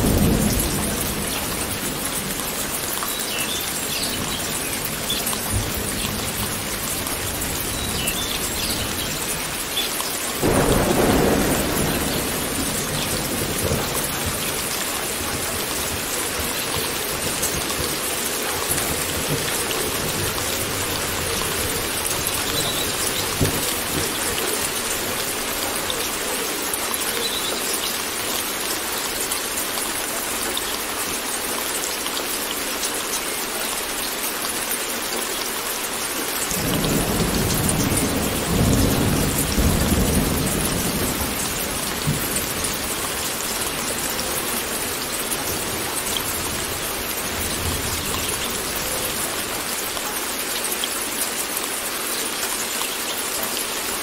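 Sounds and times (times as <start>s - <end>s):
steady rain: 0.0s - 54.0s
thunder rumbling: 10.4s - 26.0s.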